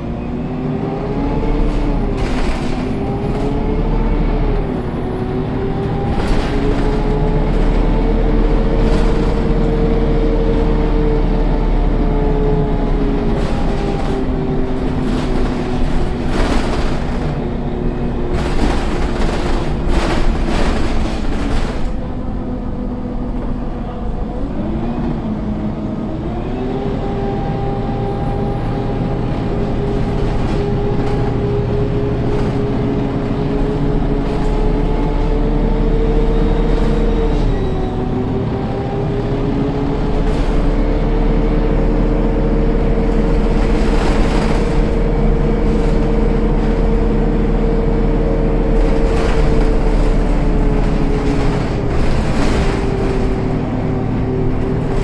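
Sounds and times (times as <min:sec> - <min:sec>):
bus gearbox whine: 0:00.0 - 0:24.2, 0:27.0 - 0:55.0
rattling: 0:13.3 - 0:22.2.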